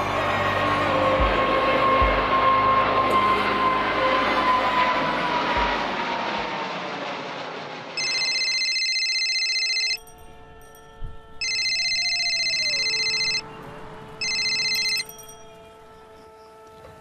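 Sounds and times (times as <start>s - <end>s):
phone ringing: 8.0s - 10.8s, 11.4s - 13.5s, 14.2s - 15.3s.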